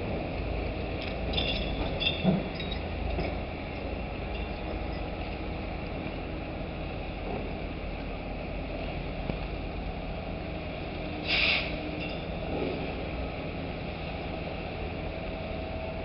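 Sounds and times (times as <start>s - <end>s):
crane machinery rumbling: 0.0s - 16.0s
air hiss: 11.2s - 11.8s.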